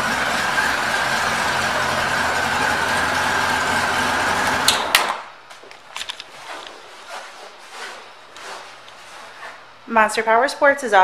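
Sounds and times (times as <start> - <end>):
motorcycle engine idling: 0.0 - 4.7
faint handling sounds: 5.5 - 9.8.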